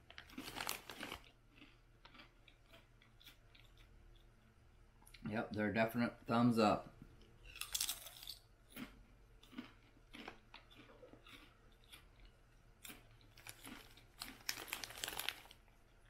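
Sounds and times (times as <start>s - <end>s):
person crunching potato chips: 0.0s - 4.2s, 7.4s - 16.0s
chip bag rustling: 0.1s - 1.3s, 13.4s - 15.6s.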